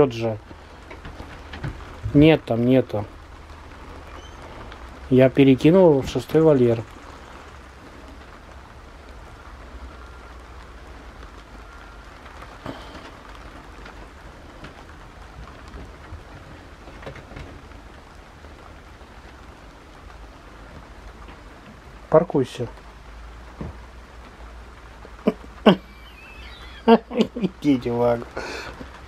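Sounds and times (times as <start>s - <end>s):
steady rain falling: 0.0s - 29.0s
faint knocks: 23.5s - 23.9s.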